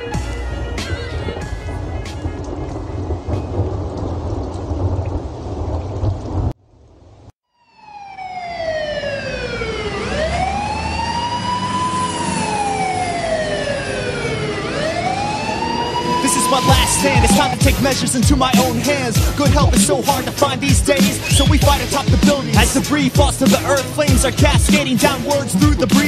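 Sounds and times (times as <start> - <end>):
rain: 0.0 - 7.4, 9.6 - 26.0
low rumble of thunder: 0.2 - 7.3
siren wailing: 7.5 - 26.0.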